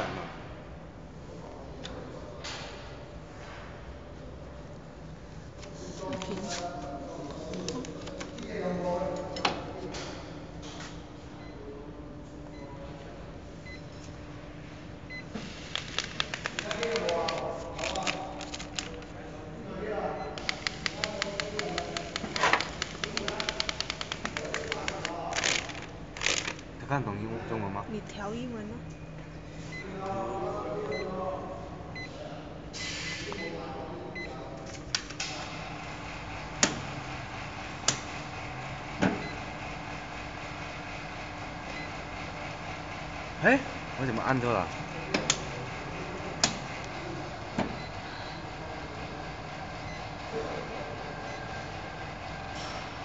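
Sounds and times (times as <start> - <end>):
packing machine humming: 15.0 - 19.6, 20.2 - 27.8, 34.8 - 53.0
plastic film crackling clicks: 15.7 - 19.1, 20.4 - 26.6.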